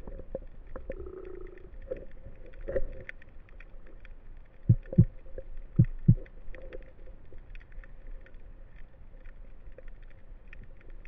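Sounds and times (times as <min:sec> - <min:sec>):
faint clicking: 0:00.0 - 0:11.0
low underwater rumble: 0:00.0 - 0:11.0
dull underwater thumps: 0:04.7 - 0:05.2, 0:05.8 - 0:06.2.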